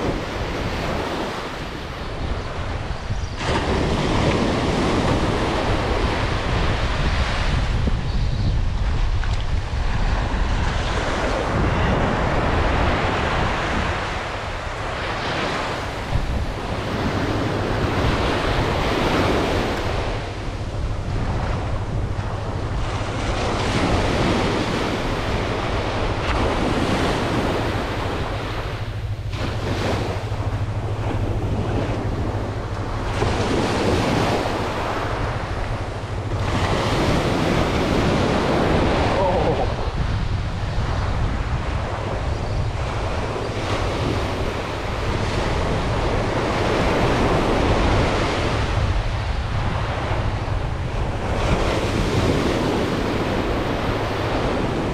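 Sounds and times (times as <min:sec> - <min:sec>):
wind buffeting microphone: 0:00.0 - 0:54.9
surf breaking on sandy beach: 0:08.6 - 0:54.9.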